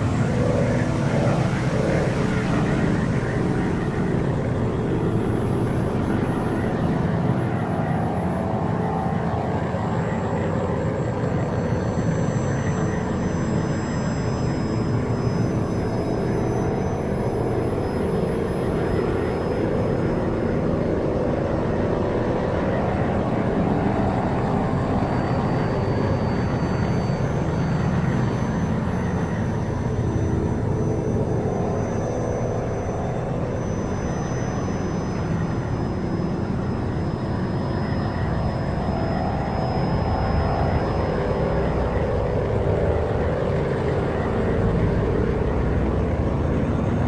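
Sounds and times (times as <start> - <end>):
steady droning rumble: 16.2 - 47.0.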